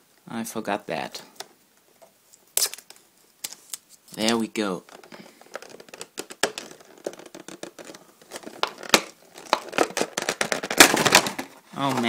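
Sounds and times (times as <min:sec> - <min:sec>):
plastic packaging crinkling: 0:02.6 - 0:12.0.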